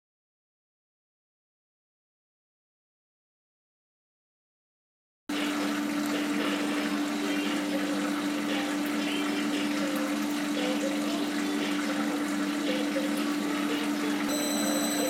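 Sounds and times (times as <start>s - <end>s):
machine hum: 5.3s - 15.0s.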